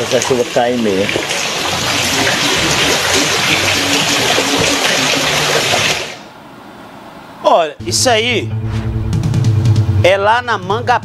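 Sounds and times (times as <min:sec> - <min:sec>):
water rushing through street: 0:00.0 - 0:06.2.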